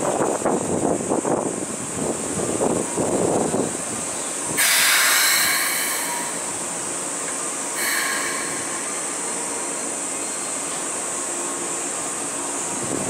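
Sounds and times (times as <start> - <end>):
train air brakes hissing: 3.9 - 12.9.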